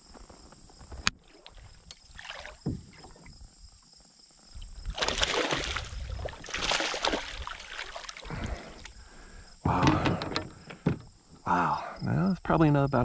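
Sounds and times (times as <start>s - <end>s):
splashing and scuffling against hull: 0.8s - 3.4s, 4.7s - 9.0s.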